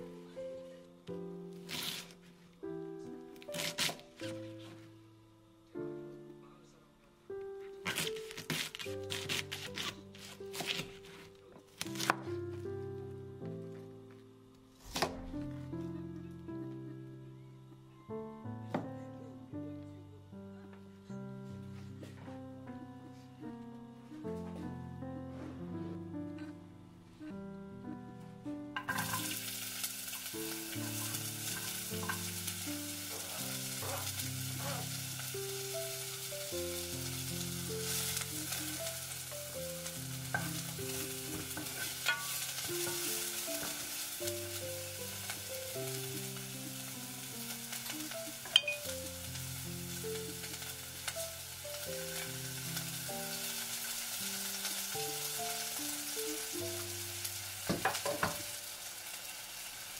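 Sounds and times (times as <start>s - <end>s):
soft background music: 0.0s - 59.9s
vegetables sizzling in a saucepan: 1.6s - 2.2s, 28.8s - 59.9s
wooden spoon knocking on pan: 57.7s - 58.5s.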